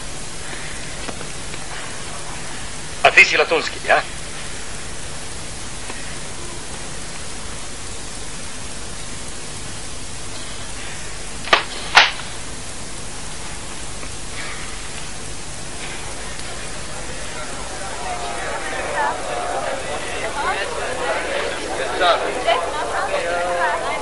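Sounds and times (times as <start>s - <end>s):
film soundtrack hiss: 0.0s - 24.0s.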